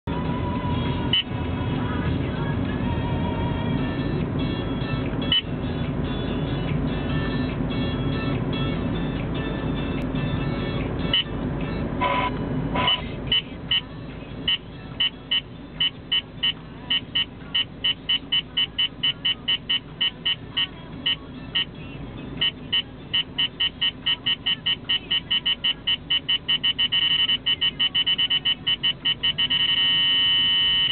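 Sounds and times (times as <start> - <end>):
car cabin road noise: 0.0 - 30.9
radar detector beeping: 12.0 - 13.9, 14.5 - 21.7, 22.4 - 30.9.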